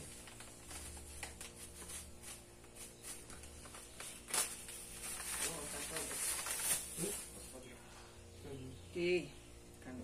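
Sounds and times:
plastic bag rustling: 0.0s - 7.6s.

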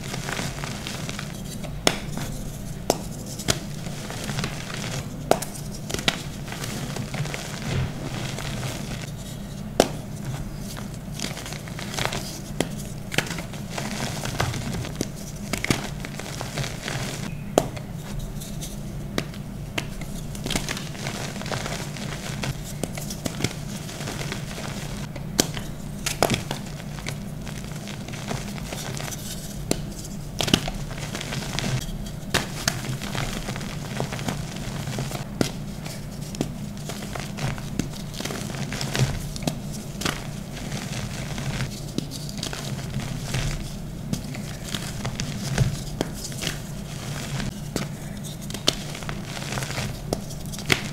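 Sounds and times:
low hum: 0.0s - 22.8s
hands crumbling chalk powder: 0.0s - 50.9s
sharp crackles: 13.2s - 17.3s.

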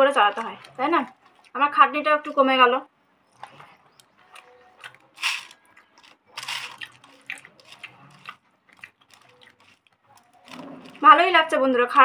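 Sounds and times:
chewing: 0.3s - 1.6s, 3.3s - 11.0s
fingers squishing wet food: 3.3s - 11.0s.

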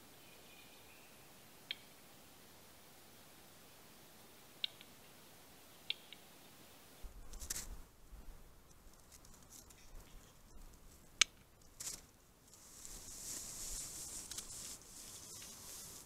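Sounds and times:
bird sharp clicks: 1.6s - 1.9s, 4.6s - 5.0s, 5.8s - 6.3s.

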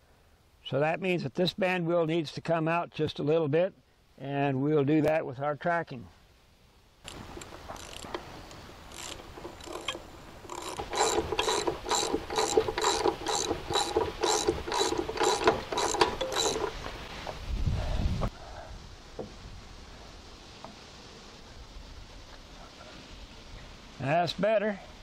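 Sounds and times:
ratchet wrench clicking: 7.1s - 8.2s, 8.9s - 16.8s.

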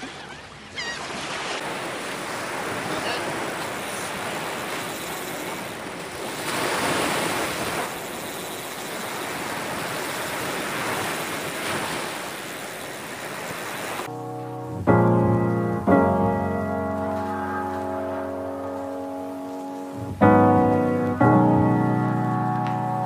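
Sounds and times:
ocean surf breaking: 0.0s - 14.8s, 16.2s - 23.0s
piano music: 14.1s - 23.0s.

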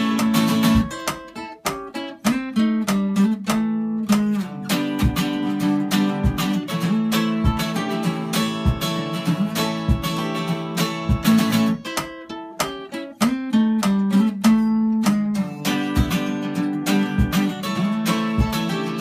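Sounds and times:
acoustic guitars strumming: 0.0s - 19.0s
picked guitar notes: 0.0s - 19.0s
low thump on the beat: 18.3s - 18.7s.

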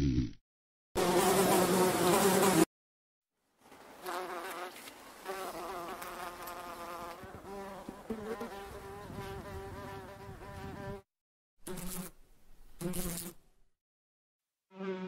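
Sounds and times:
flies buzzing: 1.0s - 2.7s, 4.0s - 11.0s, 14.7s - 15.0s.

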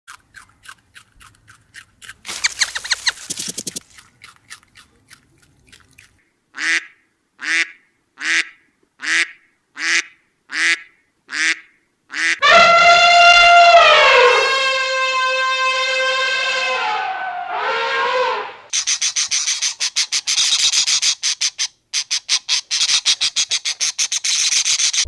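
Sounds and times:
duck quacking: 6.6s - 13.5s
elephant trumpeting: 12.4s - 18.7s.

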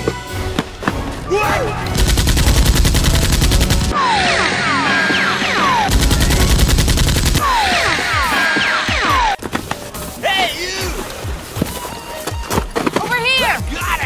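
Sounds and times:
automatic gunfire: 1.9s - 3.9s, 5.9s - 8.0s.

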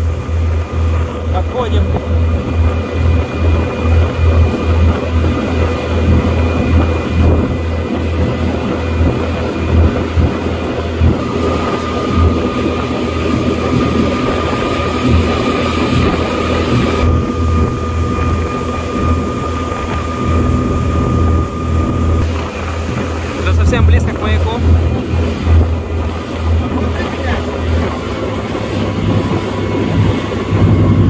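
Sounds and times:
motorboat engine running: 0.0s - 31.0s
rush of wind and water: 0.0s - 31.0s
steady whine: 0.0s - 31.0s.

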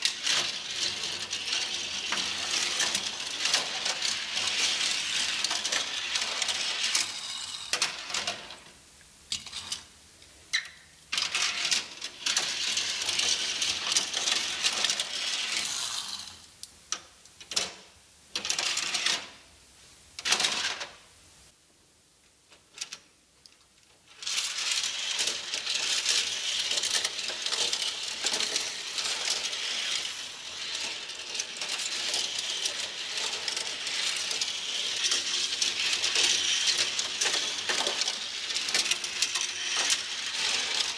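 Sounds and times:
toy cars clicking against track: 0.0s - 8.6s, 9.3s - 9.9s, 10.5s - 19.4s, 20.2s - 21.0s, 22.8s - 40.9s
toy cars rattling down plastic ramps: 0.0s - 8.6s, 10.6s - 16.5s, 17.4s - 19.4s, 20.2s - 21.0s, 24.0s - 40.9s.

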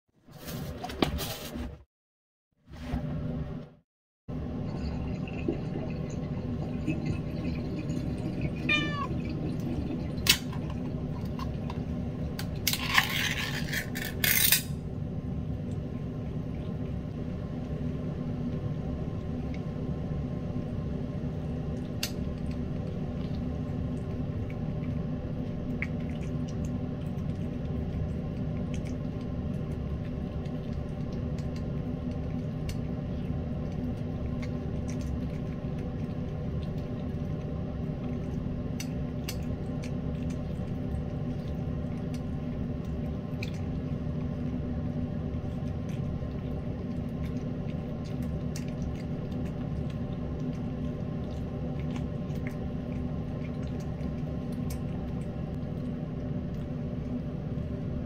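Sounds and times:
steady low hum: 2.8s - 58.0s.

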